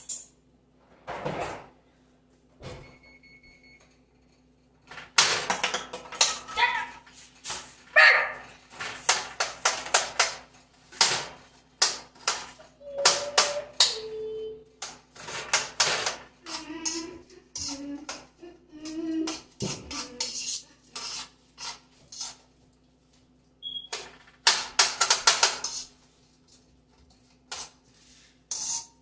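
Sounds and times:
utensil scraping a wok: 19.3 - 22.6, 25.5 - 29.0.

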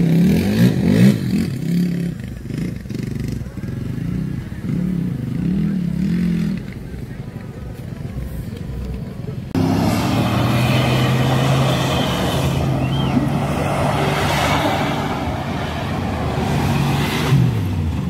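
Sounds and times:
tyres churning in mud: 6.1 - 18.0
truck engine revving high: 9.5 - 18.0.

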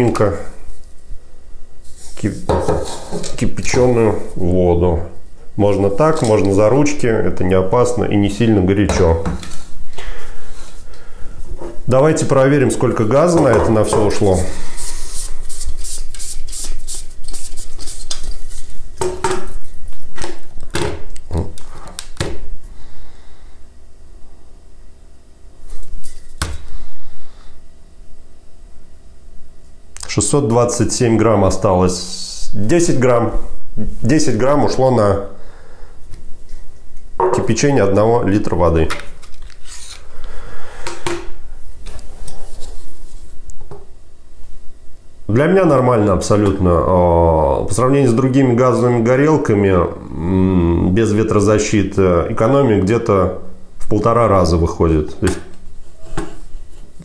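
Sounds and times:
rubbing of handled parts: 14.0 - 18.8.

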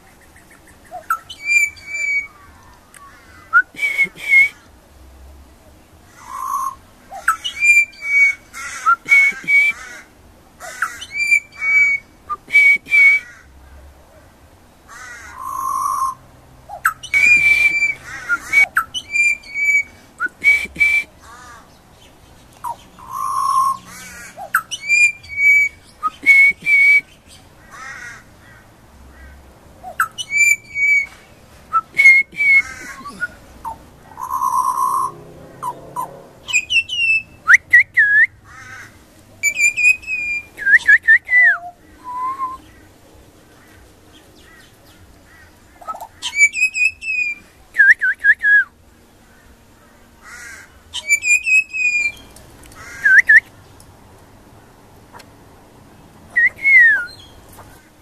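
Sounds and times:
bird singing fluting whistles: 1.0 - 2.4, 6.3 - 9.8, 11.0 - 13.3, 16.8 - 21.1, 24.5 - 27.2, 29.9 - 33.4, 34.2 - 35.1, 36.5 - 38.4, 39.4 - 42.6, 45.9 - 48.7, 51.0 - 52.3, 53.0 - 53.5, 56.4 - 57.3.

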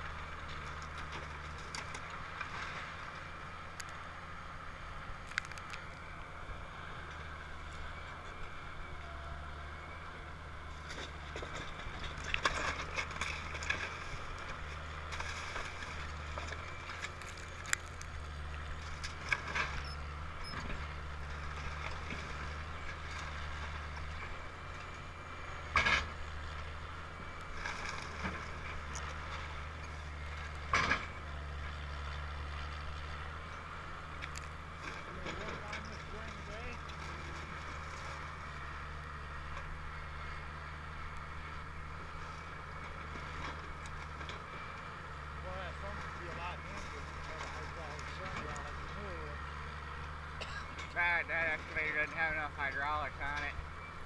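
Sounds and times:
excavator diesel engine running: 0.0 - 54.0
timber breaking and crashing: 15.2 - 18.3.

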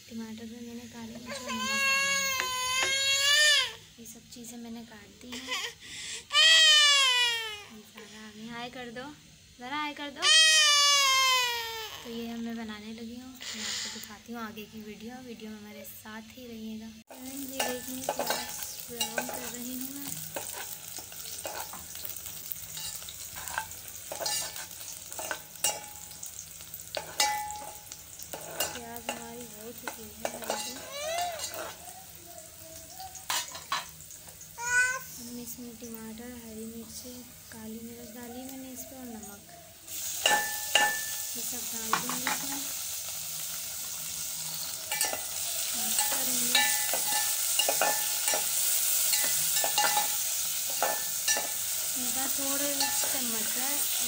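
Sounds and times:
onions sizzling in oil: 0.0 - 54.0
spoon clinking against metal: 17.5 - 19.7, 20.4 - 22.1, 22.7 - 26.2, 26.9 - 31.8, 33.3 - 34.0, 40.2 - 41.3, 44.9 - 51.6, 52.7 - 53.6
metal spoon scraping pot: 17.6 - 19.7, 20.3 - 22.0, 22.8 - 26.0, 26.9 - 31.8, 44.5 - 51.6.

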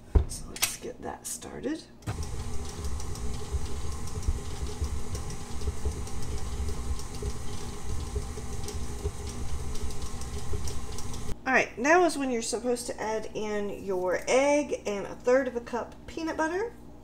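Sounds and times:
electric stand mixer running: 2.1 - 11.4.

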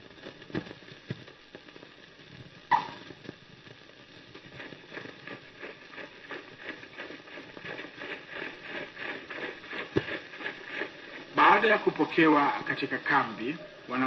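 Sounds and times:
rhythmic footfalls: 2.7 - 13.3.

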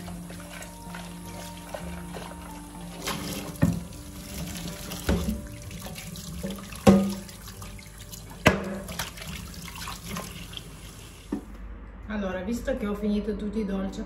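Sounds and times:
tap running into a sink: 3.0 - 7.4
pan knocking against metal sink: 5.0 - 5.4, 6.8 - 7.3, 8.4 - 9.1.

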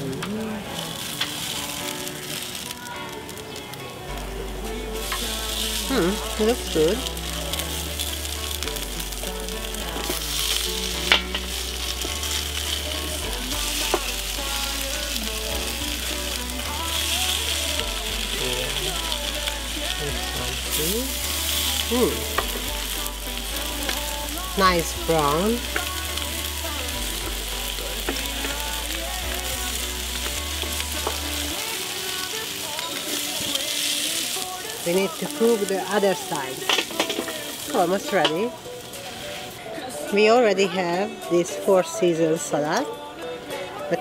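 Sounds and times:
background music: 0.0 - 44.0
patties sizzling on grill: 0.0 - 44.0
utensil clacking on grill plate: 5.0 - 39.0.

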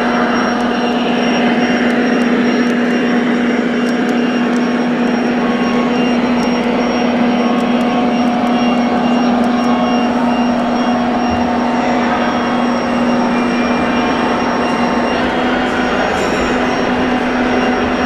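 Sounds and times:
electric motor whine: 0.0 - 18.0
mechanical noise: 0.0 - 18.0.

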